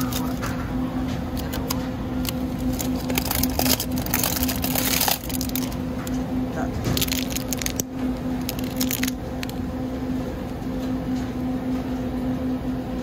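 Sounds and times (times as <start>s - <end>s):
plastic food pack crackling: 0.0s - 6.2s, 6.8s - 9.6s
steady low hum: 0.0s - 13.0s.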